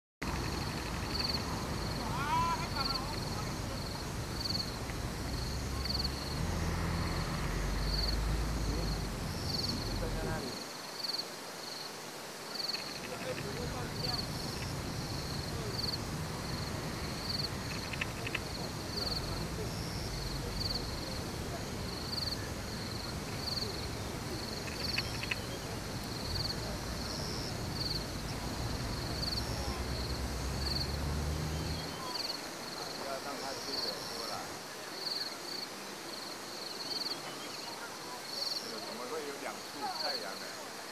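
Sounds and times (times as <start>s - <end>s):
low steady rumble: 0.2s - 10.5s, 13.0s - 31.4s
insects chirping: 0.2s - 40.9s.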